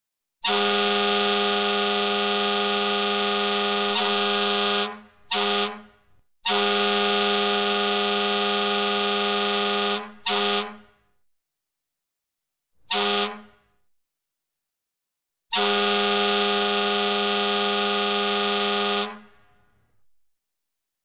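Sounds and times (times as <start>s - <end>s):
goal horn blasts: 0.4s - 11.1s, 12.9s - 13.7s, 15.5s - 19.5s.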